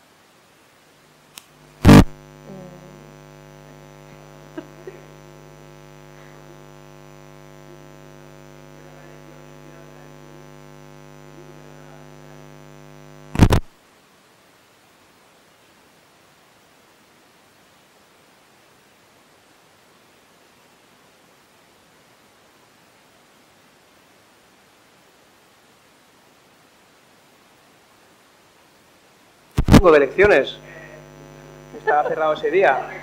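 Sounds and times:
electrical mains hum: 0:00.0 - 0:13.8, 0:27.6 - 0:33.0
microphone pops: 0:01.4 - 0:05.4, 0:13.2 - 0:13.7, 0:29.5 - 0:31.8.

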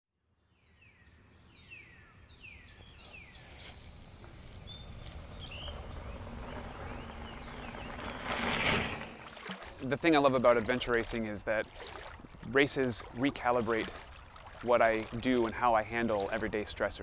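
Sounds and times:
insect trilling: 0:00.8 - 0:11.9
low rumble: 0:04.1 - 0:09.3
bird whistling: 0:04.5 - 0:08.1.

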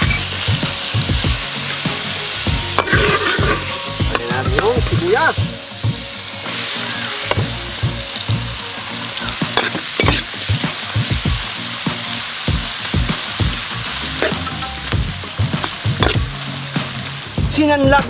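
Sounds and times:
onions sizzling in oil: 0:00.0 - 0:17.9
metal ladle scraping a pan: 0:01.5 - 0:07.5, 0:09.0 - 0:10.6.

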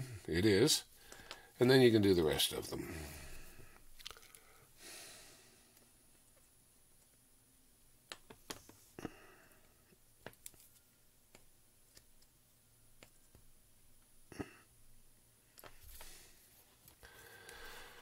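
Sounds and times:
small clicks and taps: 0:01.1 - 0:01.4, 0:08.1 - 0:08.8, 0:10.2 - 0:12.3, 0:13.0 - 0:13.5.

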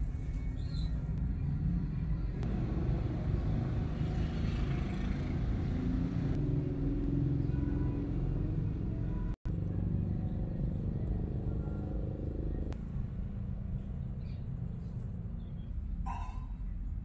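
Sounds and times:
low rumbling background noise: 0:07.8 - 0:17.0.

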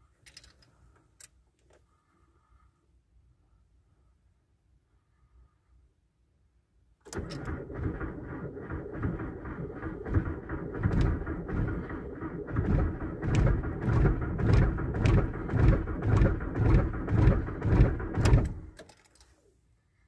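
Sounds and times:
starter cranking diesel engine: 0:07.1 - 0:18.9.

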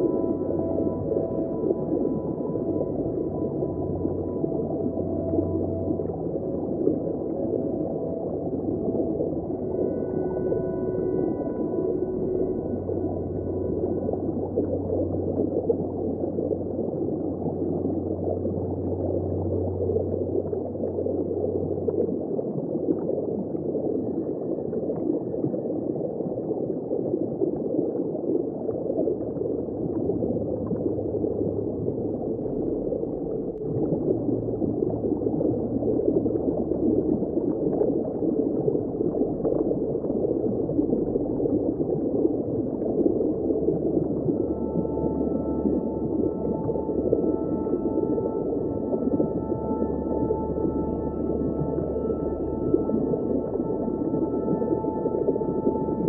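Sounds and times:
low hum: 0:00.0 - 0:26.4, 0:28.6 - 0:56.0
churning water underwater: 0:00.0 - 0:56.0.

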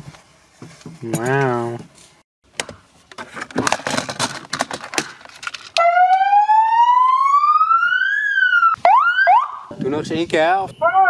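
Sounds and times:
rustling and handling noise: 0:00.0 - 0:05.8
megaphone siren wailing: 0:05.8 - 0:09.7, 0:10.8 - 0:11.0.

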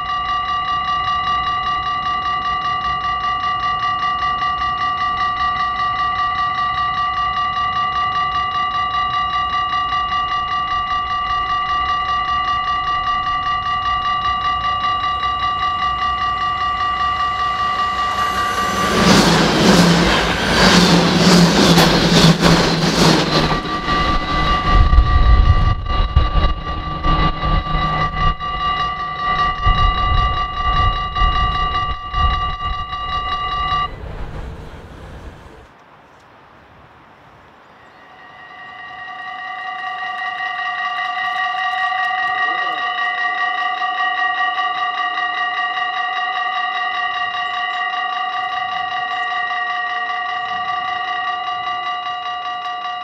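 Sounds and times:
level crossing bell ringing: 0:00.0 - 0:34.6, 0:38.6 - 0:53.0
train rushing past: 0:05.8 - 0:35.7.

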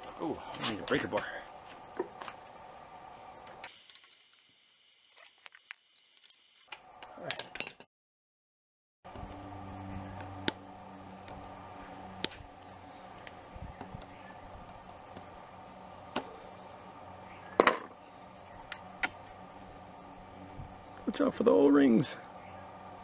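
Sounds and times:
low hum: 0:09.1 - 0:23.0.

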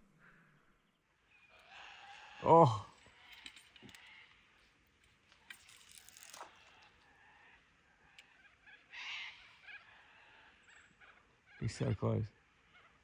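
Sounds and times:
soft ticks: 0:08.1 - 0:08.3.

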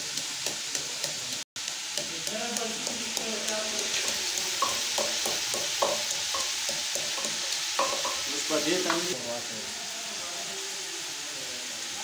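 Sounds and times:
chicken sizzling in a pot: 0:00.0 - 0:12.0.

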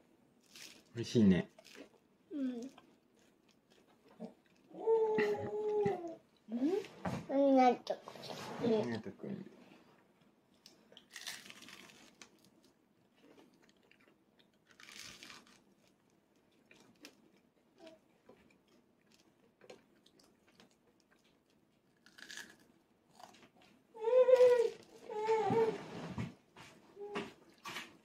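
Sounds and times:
toddler chewing crusty bread: 0:01.5 - 0:06.2, 0:10.6 - 0:25.7
toddler voiced sounds: 0:02.3 - 0:02.8, 0:04.7 - 0:08.8, 0:24.0 - 0:25.8.

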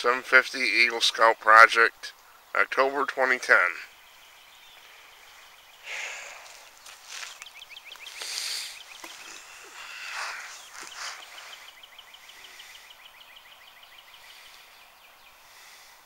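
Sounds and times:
songbird trilling: 0:03.5 - 0:15.8
rustling: 0:06.2 - 0:12.8.

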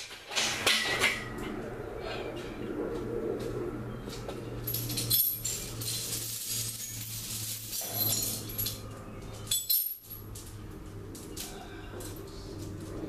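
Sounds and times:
steady low hum: 0:00.6 - 0:13.0
metal hardware clinking and rattling: 0:04.6 - 0:12.9.

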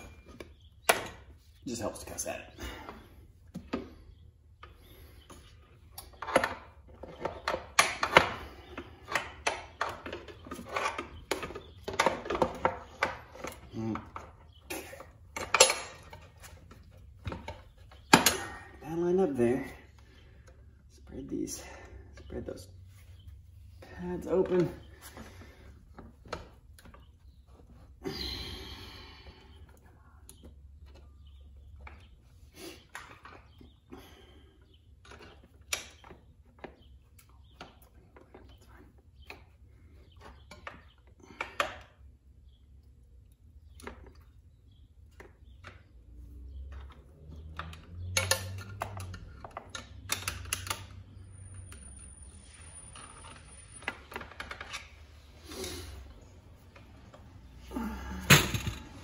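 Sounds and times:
metal parts knocking and clunking: 0:06.0 - 0:18.8, 0:46.7 - 0:51.1, 0:56.6 - 0:59.0
breathy sigh: 0:57.6 - 0:58.4
knocks of wheel and brake parts: 0:58.2 - 0:59.0.

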